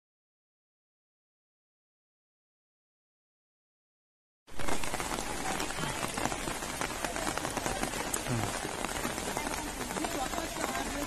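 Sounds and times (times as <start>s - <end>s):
heavy rain falling: 4.5s - 11.0s.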